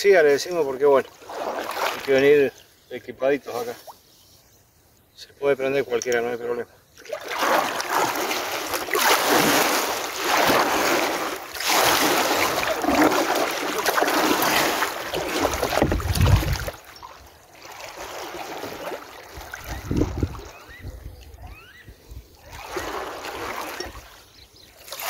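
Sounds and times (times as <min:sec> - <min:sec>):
paddle splashing in water: 0:01.0 - 0:02.3, 0:07.0 - 0:20.9, 0:22.4 - 0:25.0.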